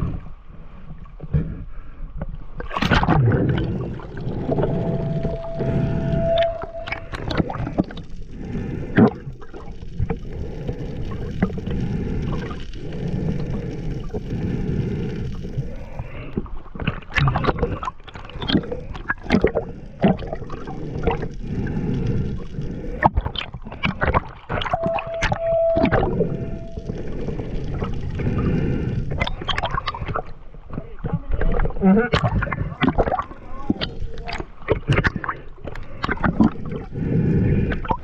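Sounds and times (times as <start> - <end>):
underwater rumble and gurgle: 0.0 - 38.0
short steady tone: 4.4 - 7.8, 24.7 - 27.4.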